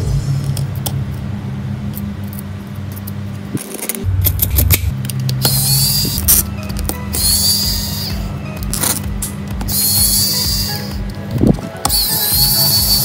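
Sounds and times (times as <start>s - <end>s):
background music with low bass: 0.0s - 2.2s, 4.0s - 13.0s.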